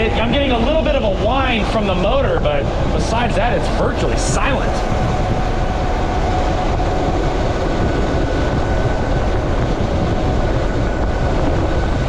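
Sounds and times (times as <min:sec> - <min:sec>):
wind rush over microphone: 0:00.0 - 0:12.0
electric motor whine: 0:04.6 - 0:12.0.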